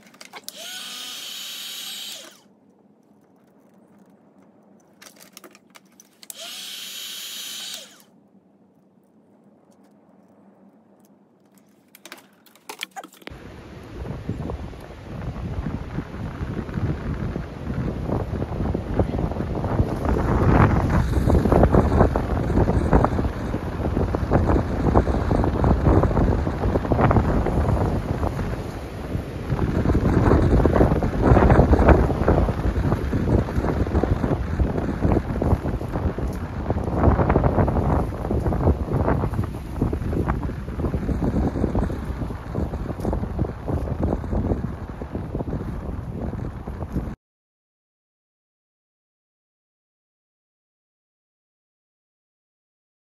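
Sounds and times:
heat gun fan whine and air rush: 0.3 - 2.4, 6.3 - 8.0
wind buffeting microphone: 13.3 - 47.2.

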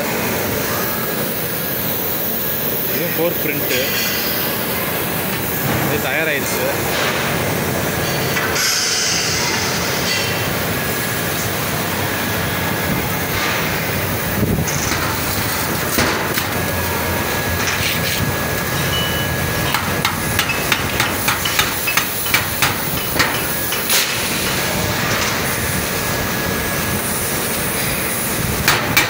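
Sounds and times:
machinery hum and hiss: 0.0 - 29.0
hammer tapping metal: 19.7 - 23.9.

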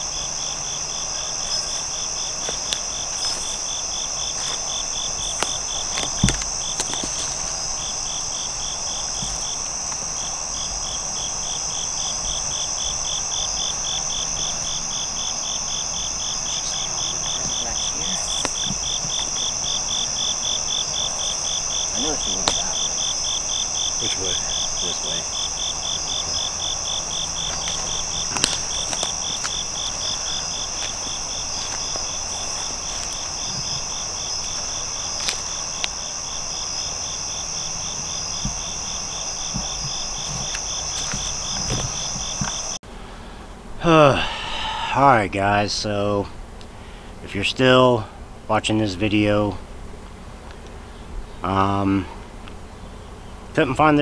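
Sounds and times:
insect trilling high: 0.0 - 42.8
insect chirping in fast pulse: 0.0 - 54.0.

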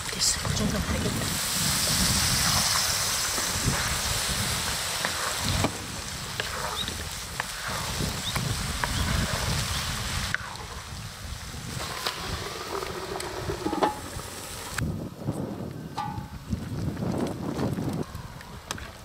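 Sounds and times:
stew simmering with pops: 0.0 - 19.0
wind rumble on microphone: 0.0 - 19.0
wooden spatula stirring: 2.4 - 9.7.

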